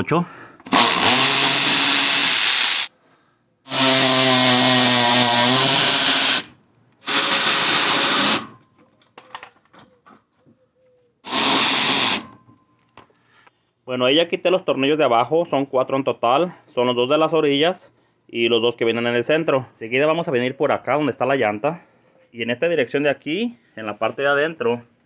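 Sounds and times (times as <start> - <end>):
cordless power tool spinning: 0.7 - 2.9, 3.7 - 6.5, 7.1 - 8.5, 11.3 - 12.2.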